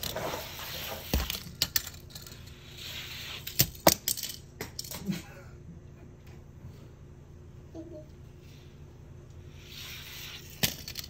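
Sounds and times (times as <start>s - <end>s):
toy cars clattering on plastic track: 0.0s - 2.4s, 10.4s - 11.0s.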